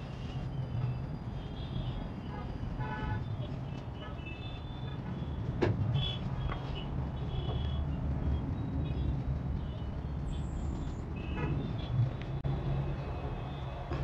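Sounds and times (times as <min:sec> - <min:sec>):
traffic rumble: 0:00.0 - 0:14.0.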